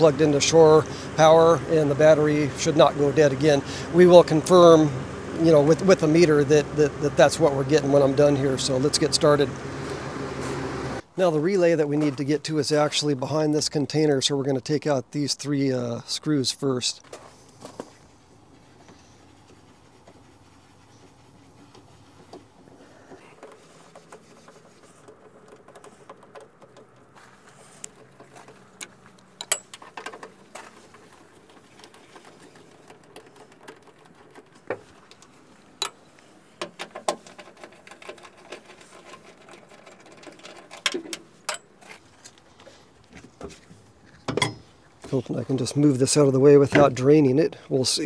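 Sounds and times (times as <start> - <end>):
plastic tank knocking and clattering: 23.2 - 27.2
screwdriver clicks and scrapes: 27.8 - 42.0.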